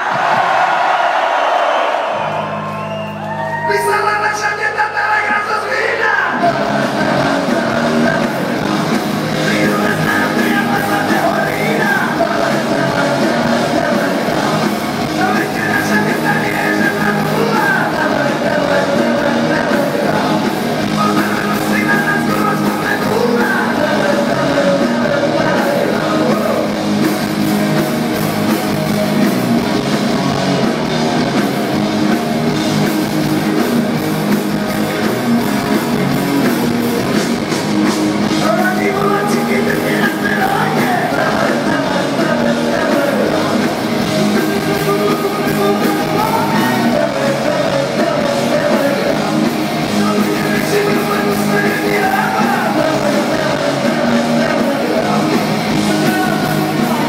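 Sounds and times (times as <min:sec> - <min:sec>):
drums: 0:00.0 - 0:57.0
distorted electric guitar: 0:02.2 - 0:57.0
person singing: 0:04.9 - 0:26.8, 0:38.3 - 0:57.0
bass guitar: 0:06.1 - 0:57.0.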